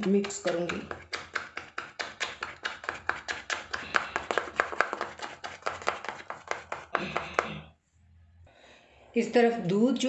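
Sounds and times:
spoon beating batter in cup: 0.0 - 7.7.

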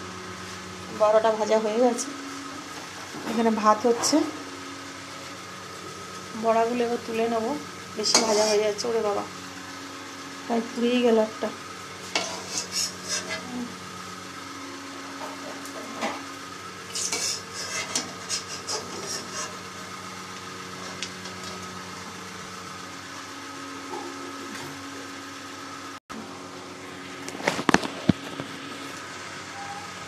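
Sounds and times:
oil sizzling: 0.0 - 26.0
metal spatula scraping pan: 8.0 - 8.8, 12.0 - 13.5, 16.9 - 19.6.

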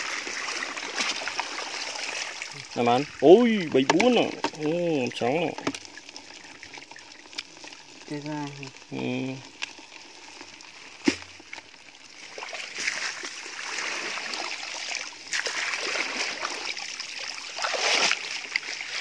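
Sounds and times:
splashing in mud: 0.0 - 2.9, 12.3 - 19.0
rustling through wet grass: 10.1 - 19.0.

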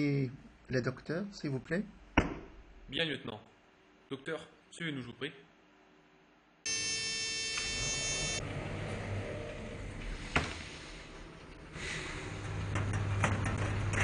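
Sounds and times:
harsh electronic buzz: 6.7 - 8.5.

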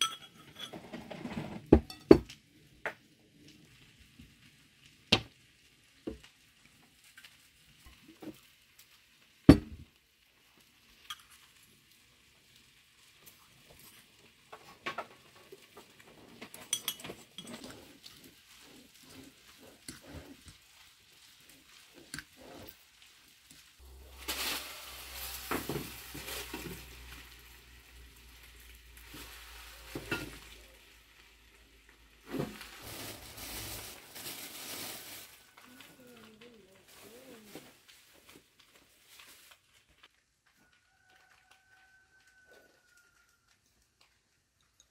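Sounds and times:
salad leaves rustling: 16.8 - 30.9, 31.6 - 40.2
plastic bag crinkling: 17.2 - 31.2, 31.8 - 40.4.

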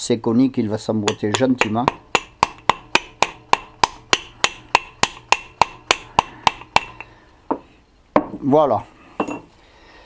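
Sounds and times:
hammer tapping metal: 1.0 - 8.4.

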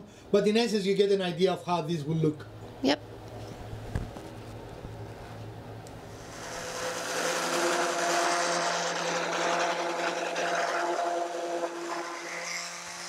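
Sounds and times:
sander motor whine: 6.1 - 13.0.

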